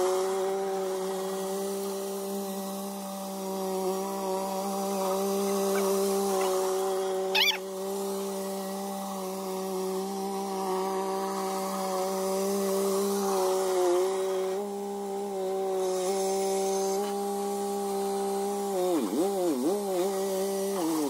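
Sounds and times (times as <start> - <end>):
high warbling call: 7.3 - 7.6.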